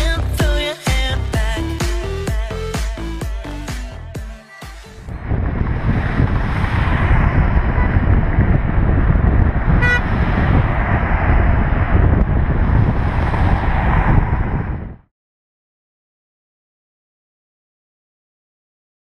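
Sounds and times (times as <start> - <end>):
freeway traffic rushing: 1.6 - 15.1
wind noise on microphone: 5.0 - 15.1
vehicle horn toot: 9.7 - 10.1.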